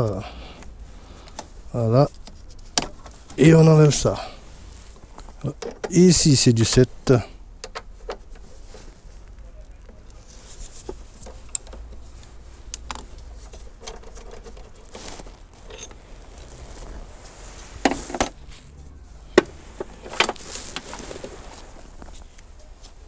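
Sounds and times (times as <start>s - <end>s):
hand tools clinking on metal: 15.6s - 16.4s.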